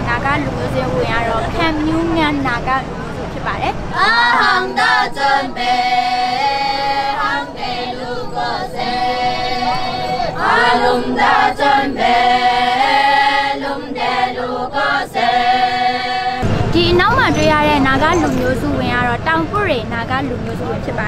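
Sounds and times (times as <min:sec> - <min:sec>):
women singing unaccompanied: 0:03.4 - 0:19.2.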